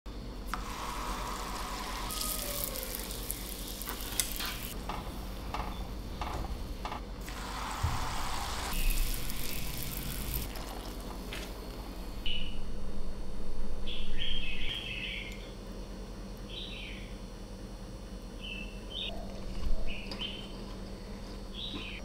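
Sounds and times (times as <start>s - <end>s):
deep-frying sizzle: 0.6s - 4.8s, 7.4s - 11.4s.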